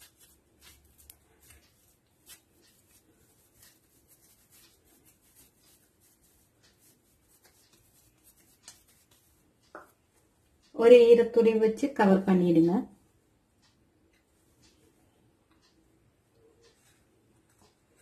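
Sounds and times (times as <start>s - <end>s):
hands rubbing dough: 0.0s - 10.4s.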